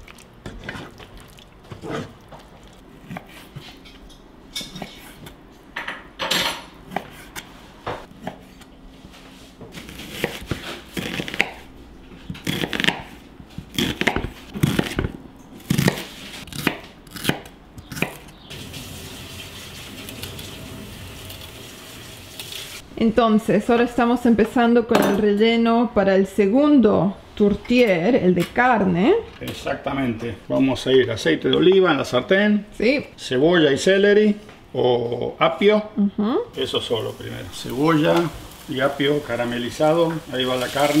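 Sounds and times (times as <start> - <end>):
knife chopping on wooden board: 9.7 - 11.6, 12.3 - 18.3
steady hiss: 36.6 - 41.0.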